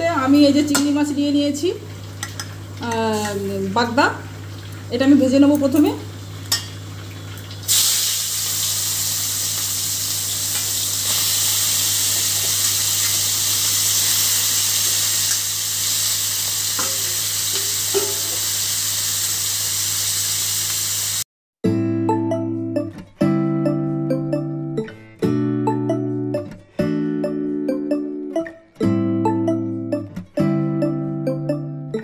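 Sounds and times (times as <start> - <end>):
prawns sizzling in hot oil: 1.7 - 21.3.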